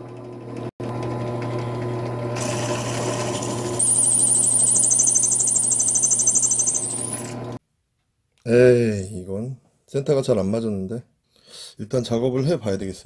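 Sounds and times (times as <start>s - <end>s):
drill press motor hum: 0.0s - 7.6s
high-pitched pulsing squeal: 3.8s - 7.3s.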